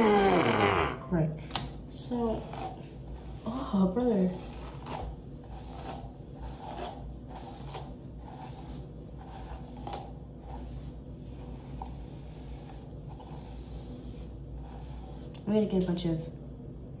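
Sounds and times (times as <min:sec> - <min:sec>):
low steady hum: 0:00.0 - 0:17.0
hair rustling: 0:01.6 - 0:16.0
hairbrush swishing through hair: 0:02.0 - 0:15.9.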